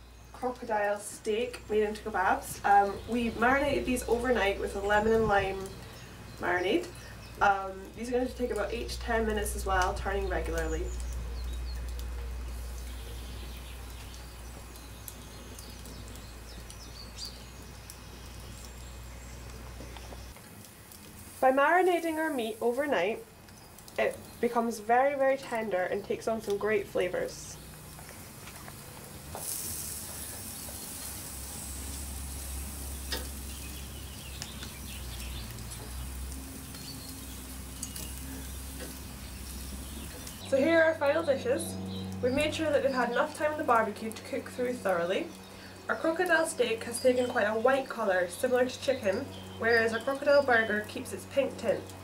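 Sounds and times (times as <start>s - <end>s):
birds chirping: 0.0s - 52.0s
meat sizzling on grill: 0.0s - 52.0s
wood fire crackling: 0.0s - 52.0s
light ticks: 9.3s - 12.3s.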